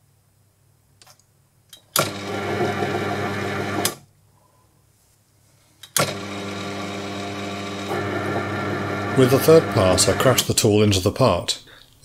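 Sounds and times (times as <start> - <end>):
lathe motor hum: 2.0 - 4.0, 6.0 - 10.4.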